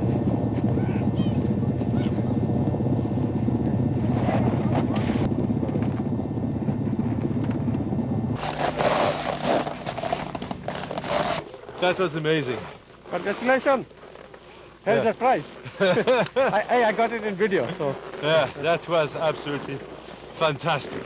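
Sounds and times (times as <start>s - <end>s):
aircraft engine rumbling: 0.0s - 11.7s.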